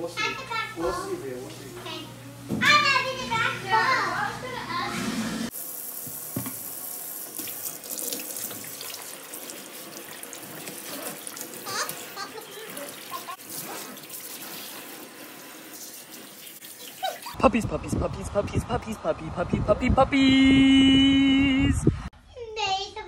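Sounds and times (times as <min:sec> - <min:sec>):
water spraying with small splashes: 0:05.5 - 0:17.4.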